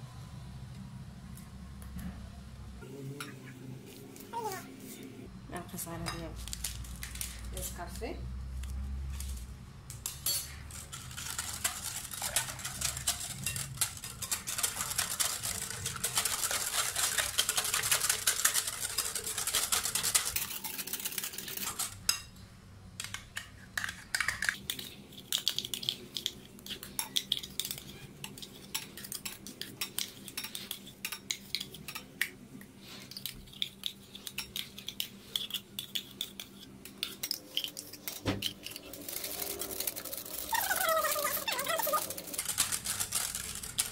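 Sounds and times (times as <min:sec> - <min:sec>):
whisk clinking against glass bowl: 0:11.2 - 0:20.8.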